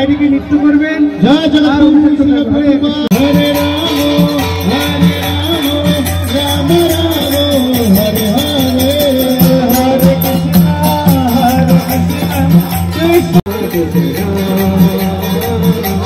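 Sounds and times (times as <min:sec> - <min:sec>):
hand cymbals striking: 0:03.1 - 0:16.0.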